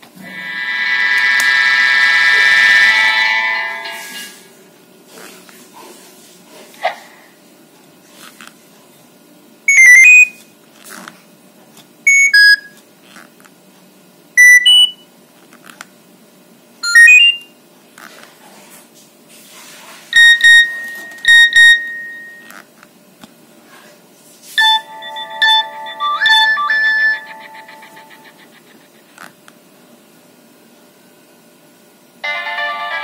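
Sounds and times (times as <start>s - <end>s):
phone beeps and held tone: 9.7s - 10.4s, 12.1s - 12.7s, 14.4s - 15.0s, 16.8s - 17.4s, 20.2s - 22.5s, 24.6s - 28.2s
phone message alert jingles: 24.6s - 28.1s.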